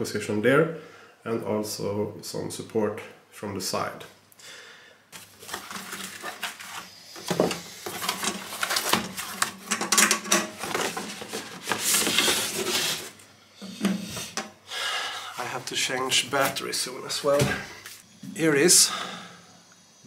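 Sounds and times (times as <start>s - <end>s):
cardboard box rustling and scraping: 5.2s - 9.7s, 10.6s - 13.2s.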